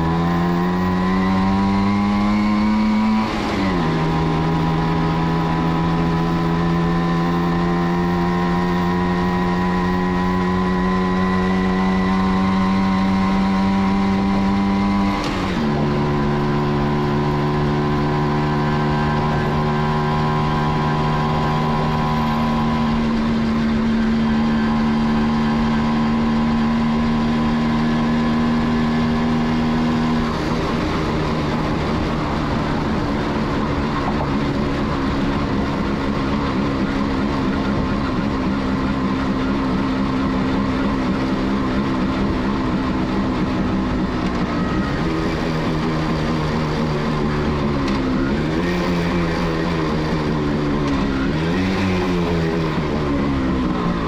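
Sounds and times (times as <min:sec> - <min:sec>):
motorcycle engine shifting gears: 0:00.0 - 0:54.0.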